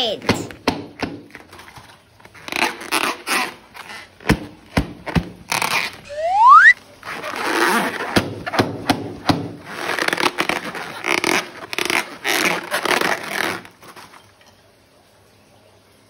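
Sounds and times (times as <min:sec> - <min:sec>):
slime squeezed by hand: 0:05.5 - 0:06.8.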